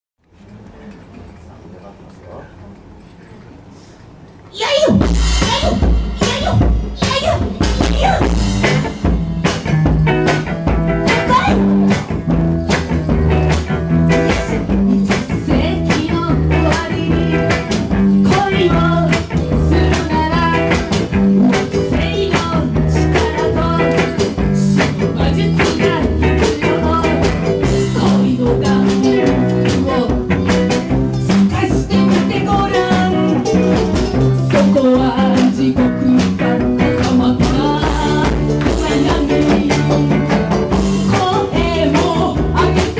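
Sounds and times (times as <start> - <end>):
woman singing: 4.6 - 8.5, 11.0 - 12.0, 14.9 - 42.9
live band playing upbeat song: 4.8 - 42.9.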